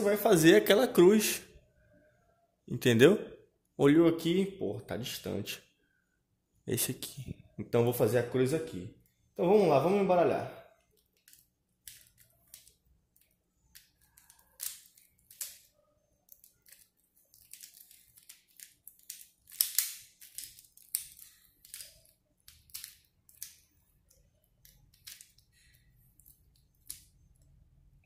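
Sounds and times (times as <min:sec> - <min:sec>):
puzzle cube plastic clicks: 0:10.8 - 0:27.6.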